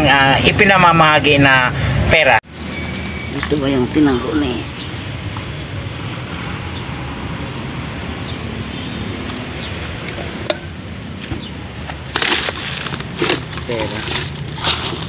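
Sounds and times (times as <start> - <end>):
outdoor background noise: 0.0 - 15.0.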